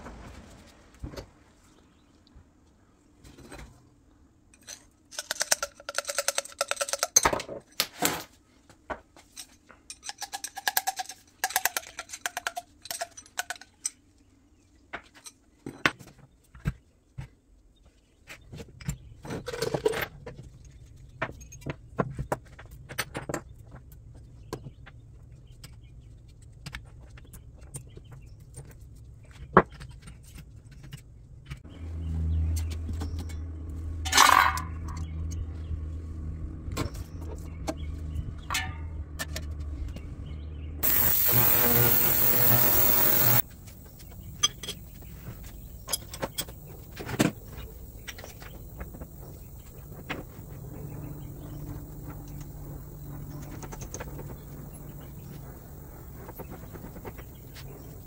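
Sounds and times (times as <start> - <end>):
metal parts clinking and squeaking: 4.5 - 7.4, 9.3 - 14.1, 40.8 - 50.7
low steady hum: 31.7 - 58.0.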